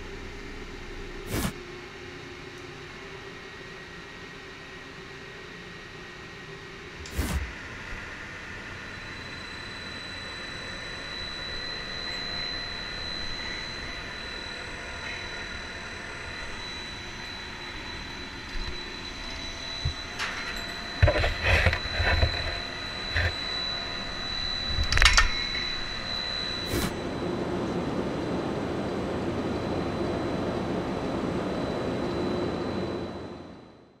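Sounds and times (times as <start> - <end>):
drilling rig machinery whining: 7.0 - 33.6.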